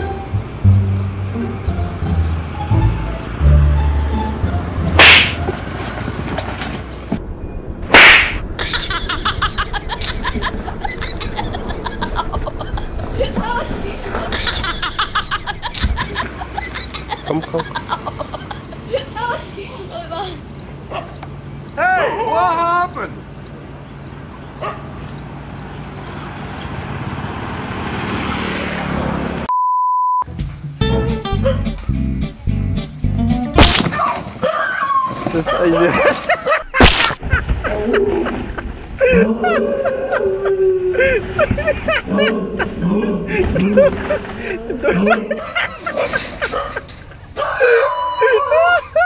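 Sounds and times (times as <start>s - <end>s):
outdoor background noise: 0.0s - 29.5s, 30.2s - 49.0s
electronic beep: 29.5s - 30.3s.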